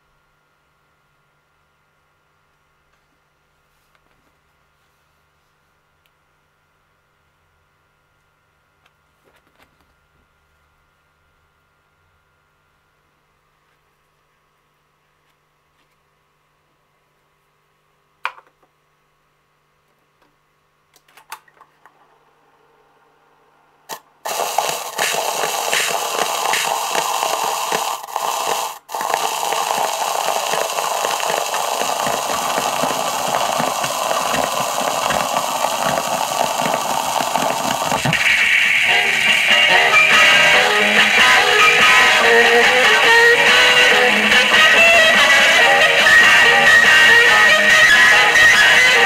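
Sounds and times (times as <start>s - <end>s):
record surface hiss and crackle: 0.0s - 49.0s
music from record: 24.3s - 49.0s.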